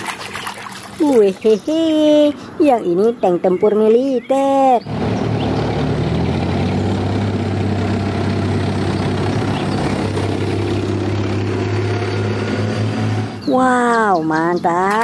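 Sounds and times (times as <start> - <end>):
tank engines humming: 0.0 - 15.0.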